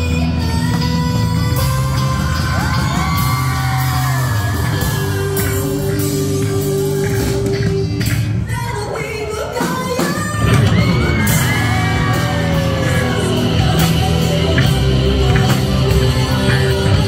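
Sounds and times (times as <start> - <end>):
live band playing: 0.0 - 17.0
woman singing: 0.0 - 17.0
audience whooping and yelling: 1.6 - 7.8, 8.7 - 17.0.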